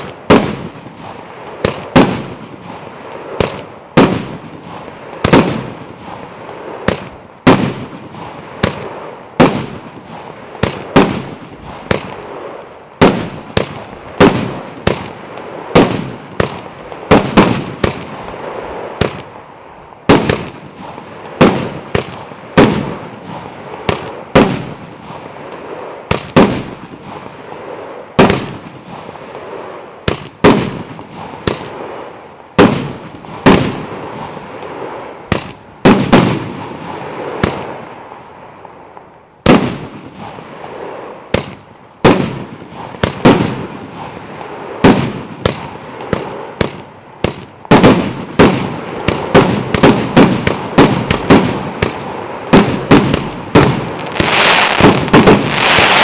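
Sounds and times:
fireworks bangs: 0.0s - 56.0s
fireworks hiss: 39.6s - 56.0s.

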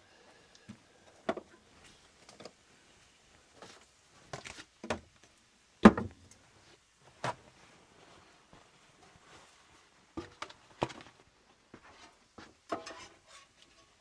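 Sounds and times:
cookware and utensils clunking: 12.7s - 13.9s.

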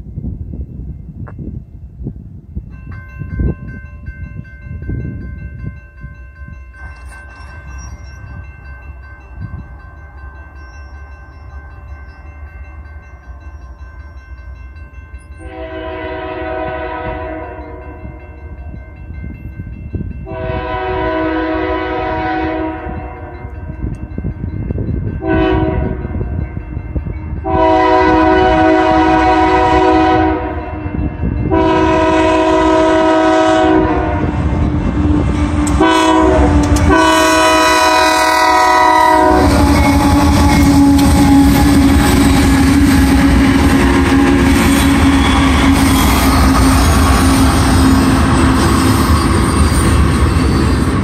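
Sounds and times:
wheels clattering on rails: 4.8s - 9.6s, 39.4s - 51.0s
locomotive air horn: 15.4s - 18.2s, 20.3s - 23.5s, 25.2s - 26.0s, 27.4s - 34.6s, 35.2s - 49.9s.

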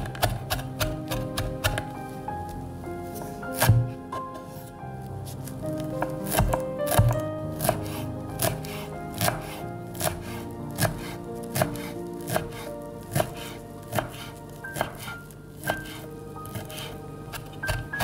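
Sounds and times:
knife chopping on wooden board: 0.0s - 1.9s, 3.6s - 4.0s, 6.0s - 10.2s, 10.8s - 18.0s.

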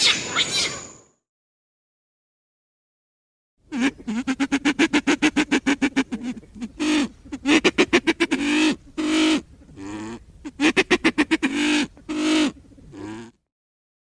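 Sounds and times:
pheasant cackling: 3.7s - 13.4s.

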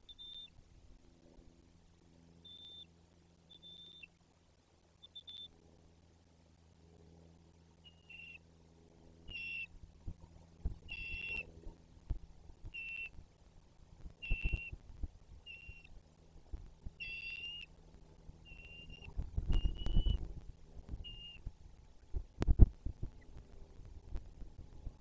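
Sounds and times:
eagle calling: 2.4s - 2.9s, 3.5s - 4.1s, 5.0s - 5.5s, 7.8s - 8.4s, 9.2s - 9.7s, 10.8s - 11.5s, 12.7s - 13.2s, 14.2s - 14.8s, 15.4s - 15.9s, 17.0s - 17.7s, 18.4s - 20.2s, 21.0s - 21.5s.

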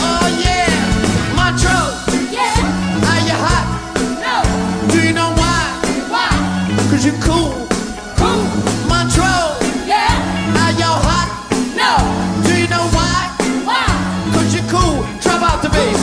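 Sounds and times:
bass-heavy beat: 0.0s - 11.4s
live band music: 0.0s - 16.0s.

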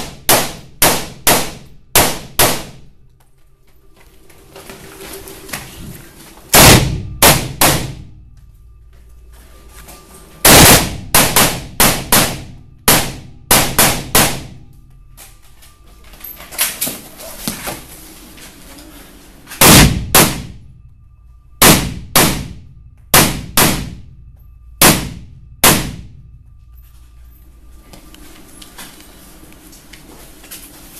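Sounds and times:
rifle shots echoing indoors: 0.0s - 3.0s, 6.5s - 8.3s, 10.4s - 15.2s, 19.5s - 20.9s, 21.6s - 26.4s.

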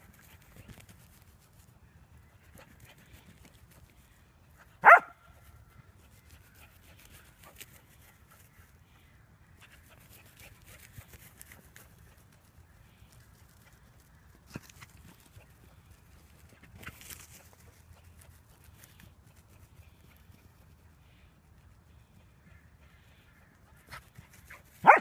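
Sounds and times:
dogs running on grass: 9.7s - 20.8s.

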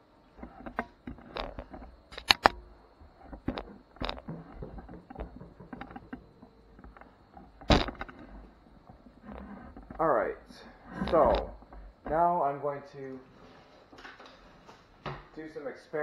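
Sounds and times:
handling clicks and rustles: 0.0s - 12.4s
sharp clicks: 2.1s - 2.6s.

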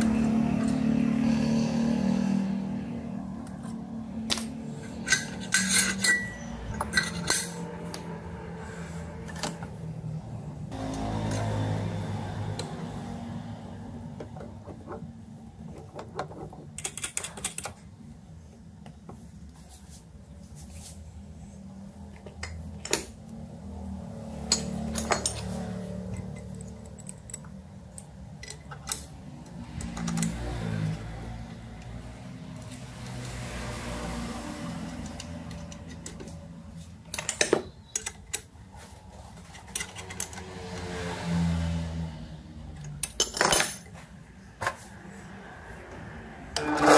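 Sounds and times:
small metal parts clicking: 24.5s - 30.4s, 37.0s - 38.5s.

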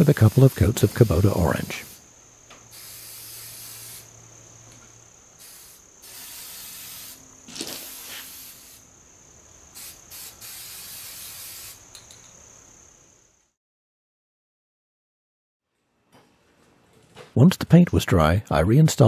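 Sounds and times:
spray can hissing: 0.0s - 2.0s, 2.7s - 4.2s, 5.4s - 8.9s, 9.7s - 12.1s.

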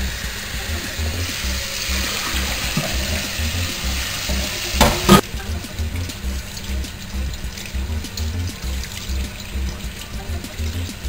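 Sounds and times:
tap water running into pan: 0.0s - 11.0s
sharp knocks: 4.8s - 5.2s.

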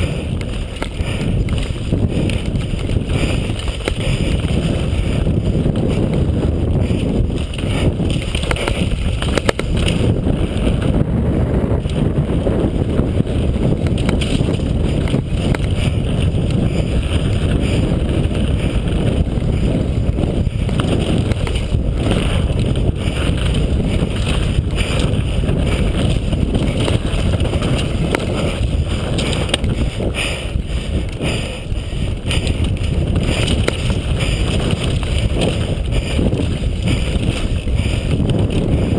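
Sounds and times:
bike knocks and rattles: 0.0s - 38.9s
bike tyres rumbling on dirt: 0.0s - 38.9s
wind buffeting microphone: 0.0s - 38.9s.

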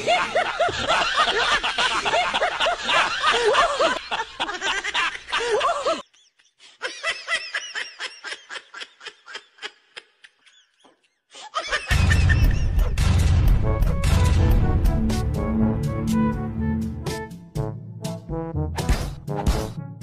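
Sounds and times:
people laughing: 0.0s - 13.0s
music with deep boom: 11.9s - 20.0s.

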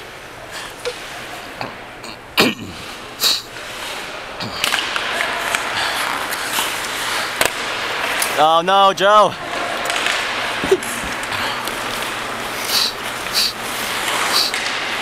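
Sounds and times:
skate blades scraping ice: 2.9s - 8.4s, 9.5s - 15.0s
hockey sticks clacking puck: 3.6s - 8.5s, 9.5s - 15.0s.

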